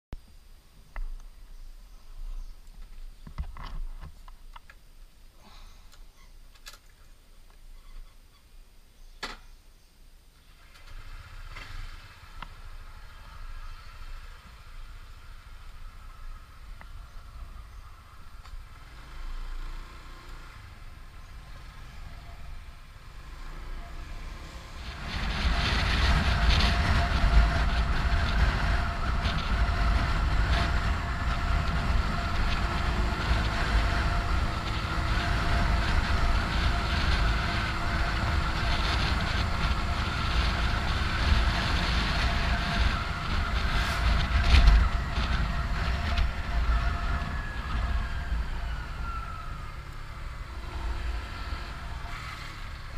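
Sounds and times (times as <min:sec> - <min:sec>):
scooter engine humming: 0:10.4 - 0:52.9
scooter riding noise: 0:10.5 - 0:52.9
rushing air: 0:24.8 - 0:47.7.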